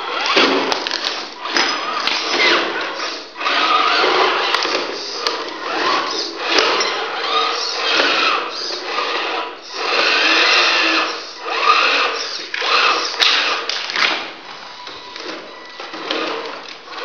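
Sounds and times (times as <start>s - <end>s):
toy truck motor whining: 0.0s - 13.8s, 15.2s - 17.0s.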